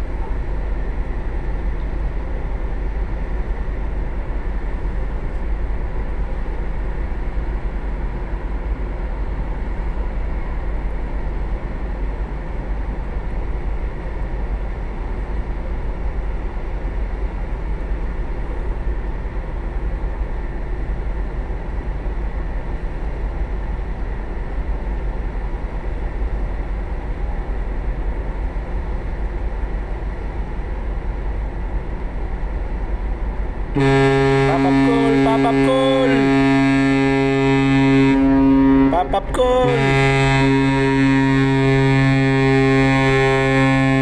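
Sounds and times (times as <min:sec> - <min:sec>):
steady low rumble: 0:00.0 - 0:44.0
deep ferry horn blast: 0:33.7 - 0:44.0.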